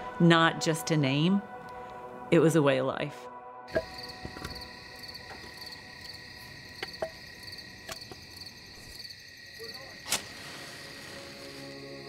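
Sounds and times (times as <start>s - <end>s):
crickets chirping: 3.7s - 12.0s.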